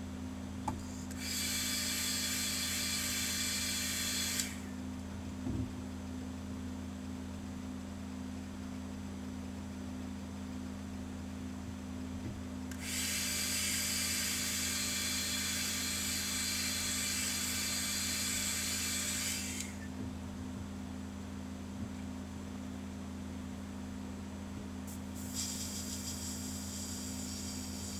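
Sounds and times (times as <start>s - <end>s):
constant low hum: 1.9s - 27.9s
airbrush spraying hiss: 24.9s - 27.9s.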